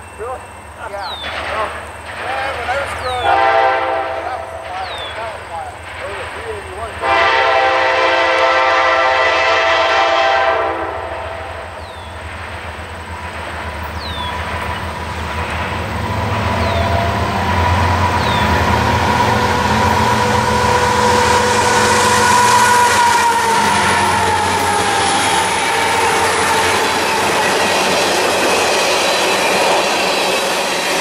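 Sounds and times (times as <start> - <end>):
approaching train engines and wheels: 0.0 - 31.0
locomotive air horn blast: 3.2 - 4.6, 7.0 - 11.6, 19.0 - 26.8.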